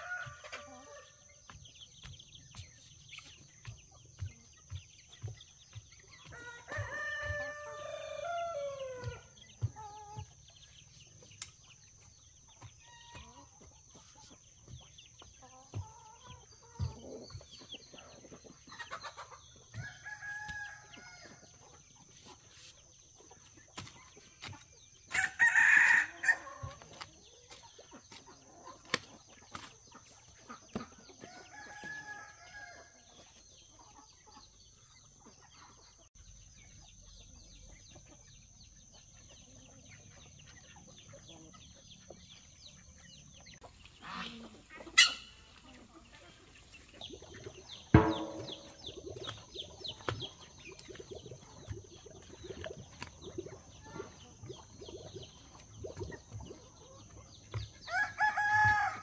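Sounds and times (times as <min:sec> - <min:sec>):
chickens clucking: 0:00.0 - 0:59.0
rooster crowing: 0:57.9 - 0:59.0.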